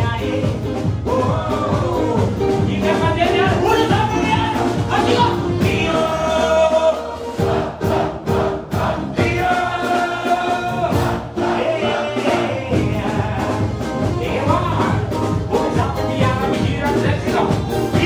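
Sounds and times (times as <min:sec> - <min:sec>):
man singing into a microphone: 0:00.0 - 0:07.1, 0:11.6 - 0:18.0
steady music beat: 0:00.0 - 0:18.0
crowd singing along: 0:04.7 - 0:16.4.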